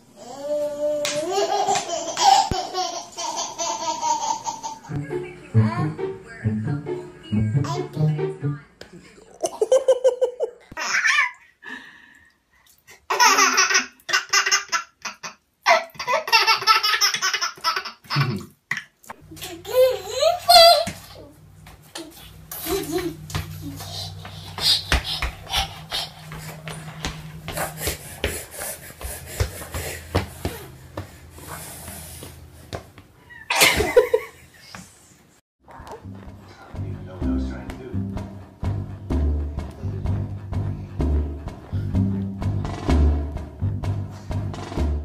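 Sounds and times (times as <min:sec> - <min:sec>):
baby laughing: 0:00.3 - 0:05.0, 0:09.4 - 0:11.4, 0:13.1 - 0:21.2, 0:22.0 - 0:26.6.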